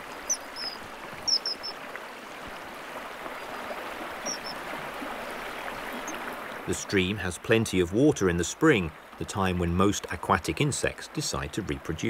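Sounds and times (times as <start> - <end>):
stream running over stones: 0.0 - 12.0
high bird chirps: 0.2 - 1.7.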